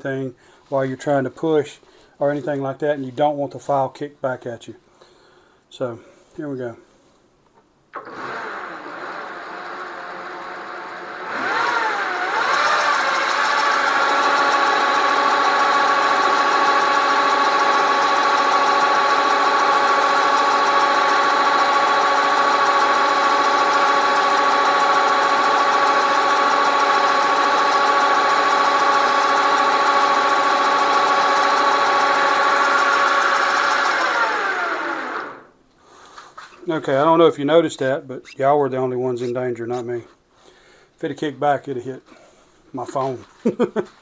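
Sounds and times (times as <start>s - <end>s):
lathe whining: 8.0s - 35.5s.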